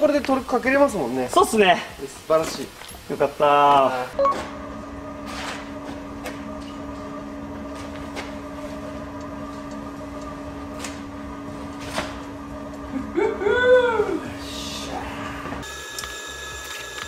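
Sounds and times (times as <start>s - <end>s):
steady hum: 0.0s - 16.6s.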